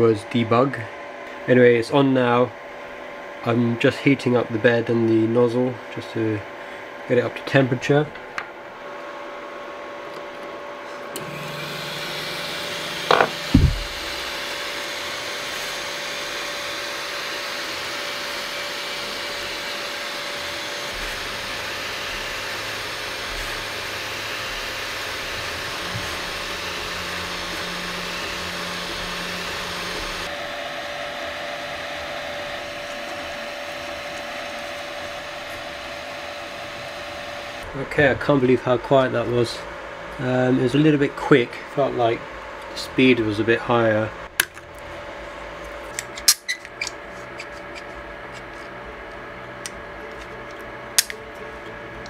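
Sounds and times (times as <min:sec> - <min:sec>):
fan whir with whine: 0:00.0 - 0:52.0
stepper motors humming: 0:10.9 - 0:38.5.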